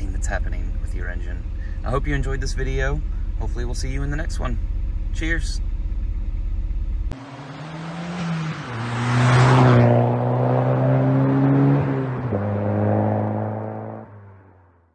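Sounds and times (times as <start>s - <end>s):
car engine idling inside cabin: 0.0s - 7.2s
car engine accelerating past: 7.1s - 14.6s.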